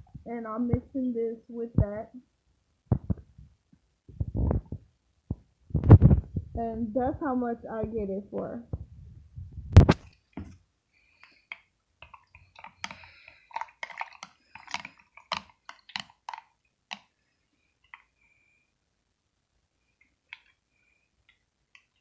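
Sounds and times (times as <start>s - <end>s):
water pouring into glass jar: 12.0s - 16.5s.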